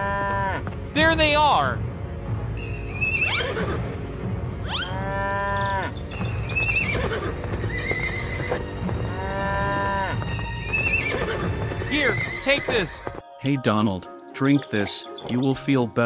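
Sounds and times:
light cartoon music: 0.0 - 16.0
farm animal calls: 3.0 - 3.8.

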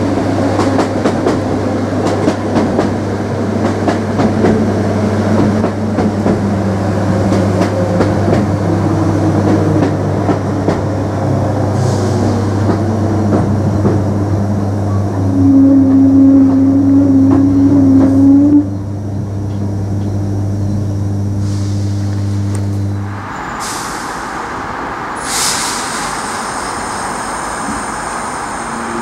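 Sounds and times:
train wheels clicking on track: 0.0 - 15.2, 15.9 - 18.6, 23.4 - 29.0
train interior hum: 0.0 - 29.0
loud humming tone: 3.1 - 23.8.

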